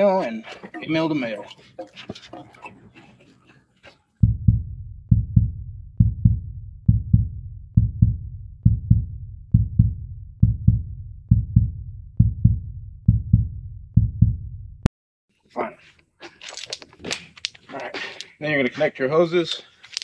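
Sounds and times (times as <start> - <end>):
deep bass drum beat: 4.2 - 14.9.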